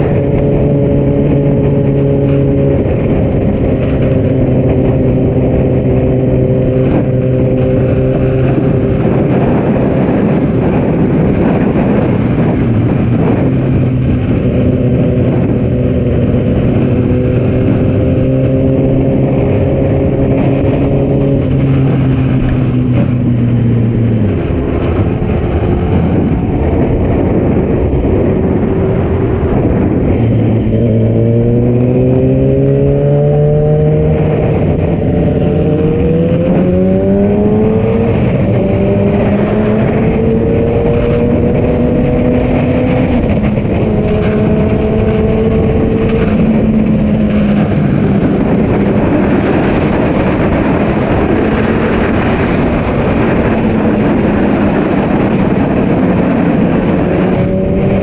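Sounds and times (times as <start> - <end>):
motorcycle engine: 0.0 - 58.0
wind noise on microphone: 0.0 - 58.0.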